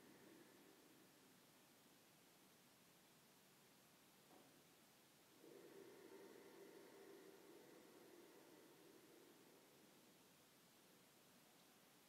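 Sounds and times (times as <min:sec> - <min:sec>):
faint slow breathing: 0:00.0 - 0:01.5, 0:05.4 - 0:10.7.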